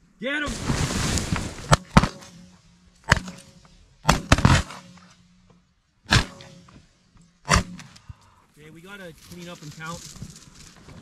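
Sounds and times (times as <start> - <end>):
shotgun shots: 1.6 - 5.2, 6.1 - 6.8, 7.4 - 8.0.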